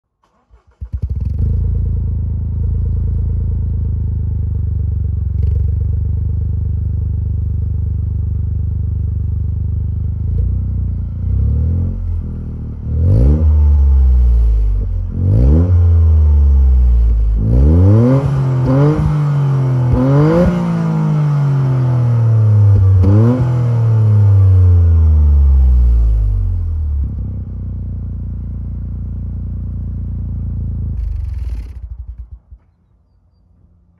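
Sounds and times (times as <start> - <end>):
car engine idling: 1.6 - 32.6
car engine revving: 10.2 - 27.2, 29.6 - 32.4.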